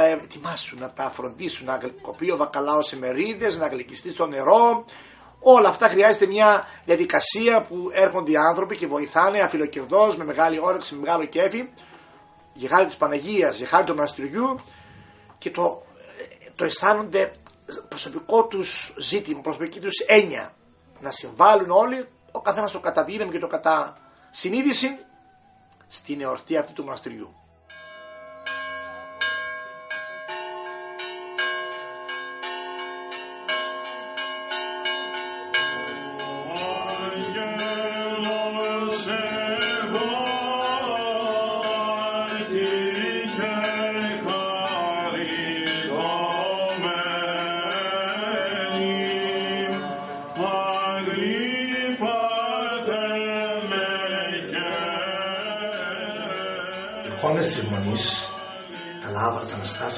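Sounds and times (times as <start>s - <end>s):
voices chanting a hymn: 0.0s - 59.9s
church bells ringing: 27.5s - 59.9s.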